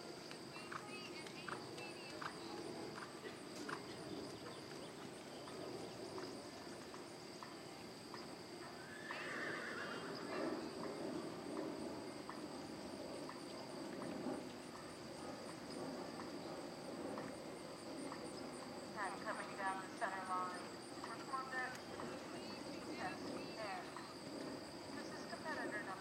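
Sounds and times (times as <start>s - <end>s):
horse whinnying: 8.8s - 10.4s.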